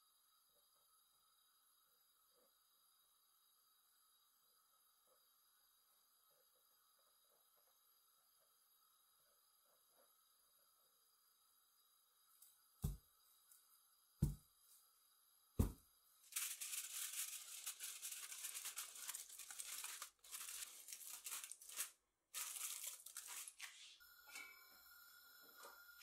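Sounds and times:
aluminium foil crinkling: 16.2 - 24.0.

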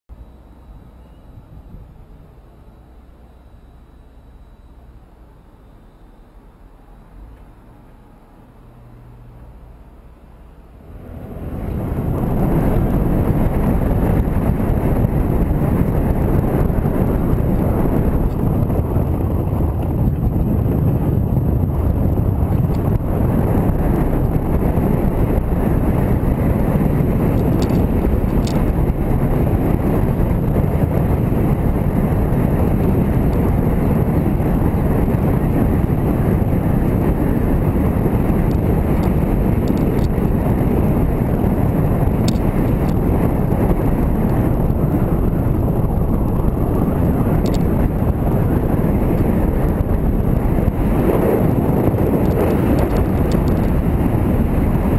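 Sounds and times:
motorcycle engine and tyre noise: 0.1 - 54.9
wind buffeting microphone: 10.8 - 54.9.

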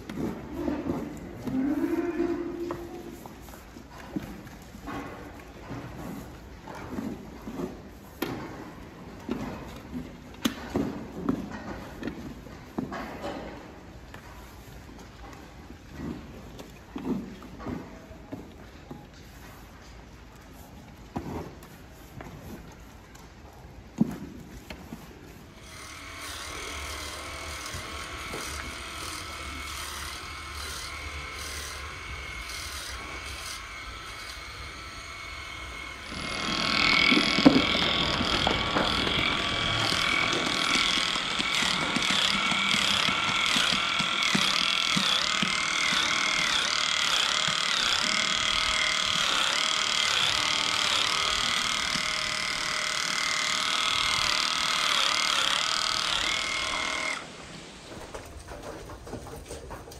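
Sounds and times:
electric clippers whining: 25.6 - 57.4.

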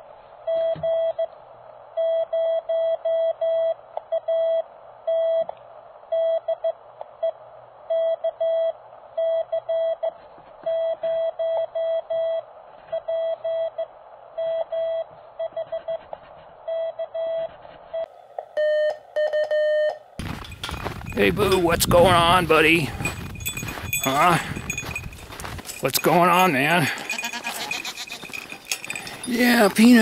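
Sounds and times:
morse code tone: 16.7 - 30.0.

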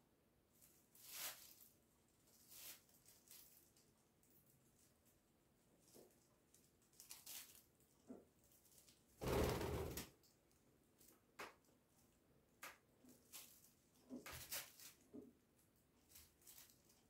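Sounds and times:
birds fluttering in plastic bag: 8.7 - 10.1.

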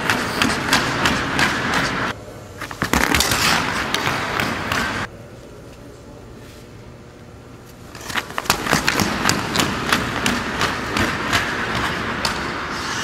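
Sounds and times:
hockey stick and puck clicks: 0.0 - 5.1, 7.9 - 12.9
skates scraping on ice: 0.0 - 5.1, 7.9 - 13.0.

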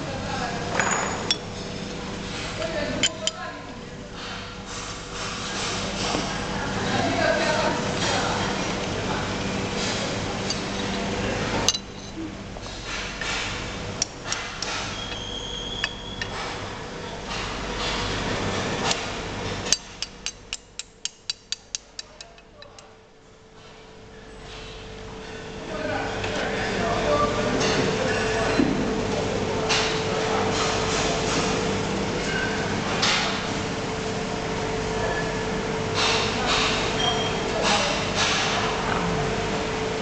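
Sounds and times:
workshop machinery hum: 0.0 - 40.0
small hammer tapping on metal: 19.7 - 22.9.

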